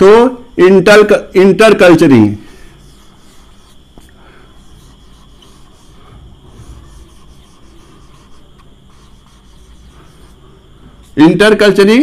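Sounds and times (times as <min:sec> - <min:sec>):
marker rubbing on whiteboard: 0:02.6 - 0:11.4.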